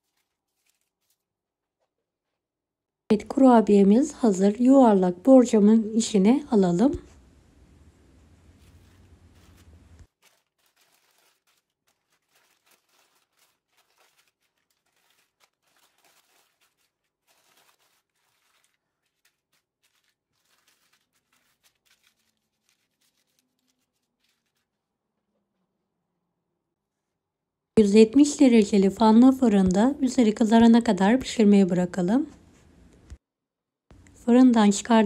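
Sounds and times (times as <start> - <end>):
baking paper crinkling: 0.0 - 2.4, 8.0 - 25.0.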